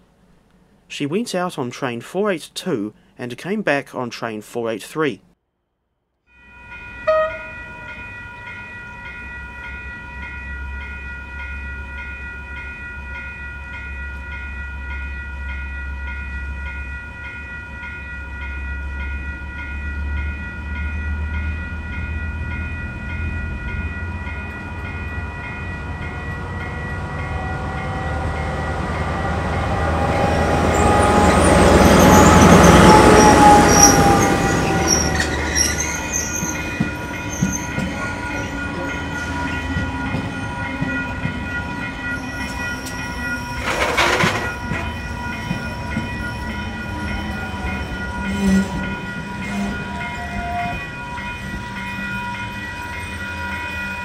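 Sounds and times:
steady high tones: 6.4s - 54.0s
diesel locomotive engine rumble: 6.8s - 54.0s
train wheel squeal: 30.0s - 41.0s, 42.0s - 53.5s.

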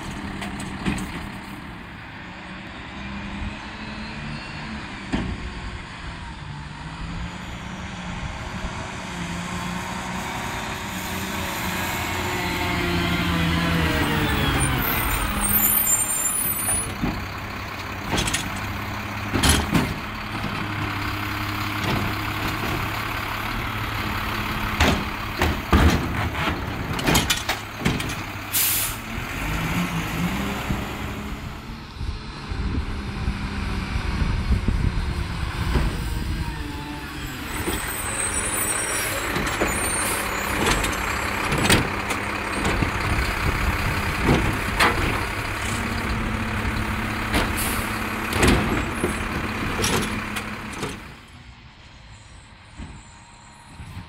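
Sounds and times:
trash cart clanking against hopper: 0.0s - 1.8s, 16.6s - 21.1s, 21.7s - 23.1s, 24.0s - 28.8s, 39.0s - 51.2s
diesel truck engine running: 0.0s - 54.0s
air brake hisses: 28.5s - 29.1s, 47.6s - 48.0s.

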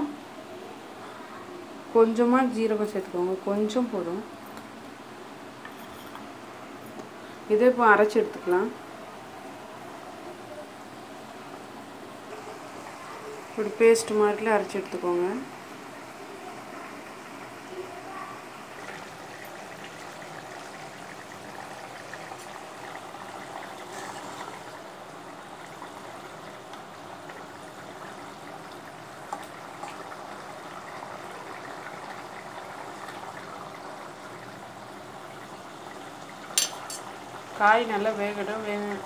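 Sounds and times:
gravy bubbling in a pan: 8.8s - 39.0s.

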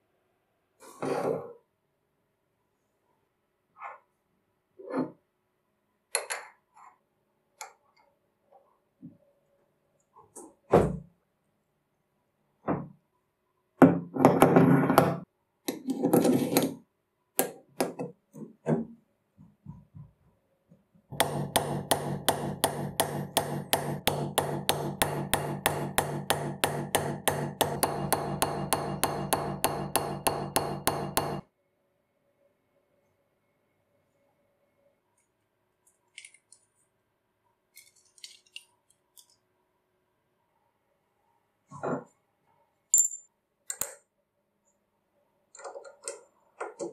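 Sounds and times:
hammer tapping metal: 21.2s - 31.4s.

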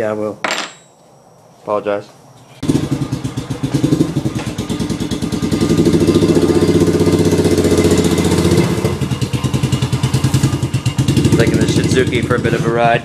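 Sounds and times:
motorcycle engine running: 2.6s - 13.0s.

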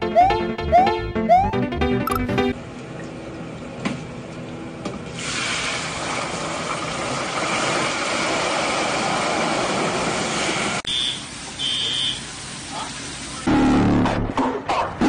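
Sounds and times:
ice sizzling in hot oil: 5.2s - 13.4s.

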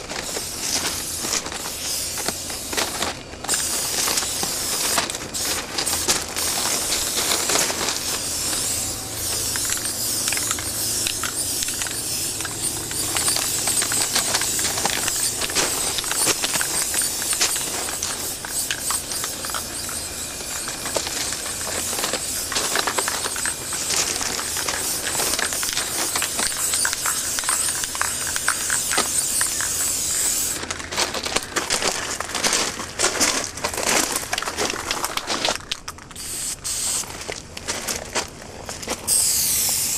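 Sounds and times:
spray paint can hissing: 0.0s - 30.7s, 36.1s - 37.1s, 39.0s - 39.9s
scattered clicks: 4.9s - 36.2s.

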